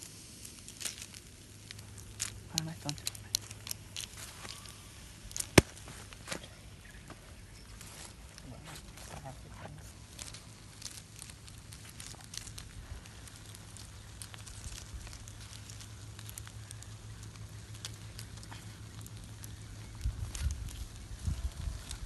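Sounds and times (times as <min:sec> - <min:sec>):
wood fire crackling: 0:00.0 - 0:22.0
crab shells clicking: 0:00.4 - 0:05.9, 0:10.0 - 0:22.0.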